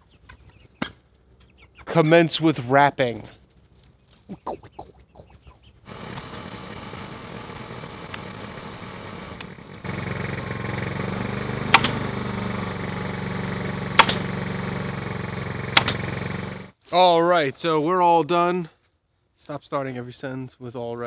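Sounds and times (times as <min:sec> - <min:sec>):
air compressor running: 0:05.9 - 0:16.7
pneumatic staple gun firing: 0:11.6 - 0:12.2, 0:13.9 - 0:14.4, 0:15.6 - 0:16.5.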